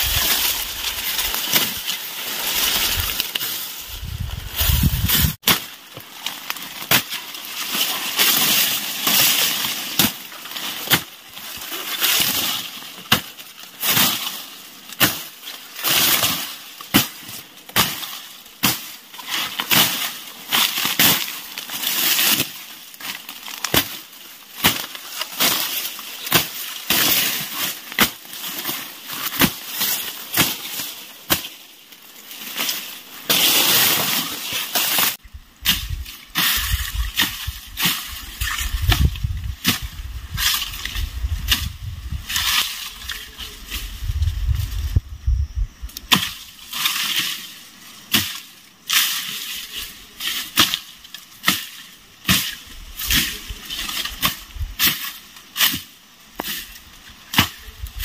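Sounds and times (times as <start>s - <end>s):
machete chopping dry grass: 0.0s - 3.5s, 4.1s - 11.2s, 11.9s - 14.4s, 15.0s - 31.6s, 32.6s - 43.2s, 46.1s - 47.5s, 48.1s - 49.5s, 50.2s - 57.8s
dry leaves rustling: 0.0s - 45.1s.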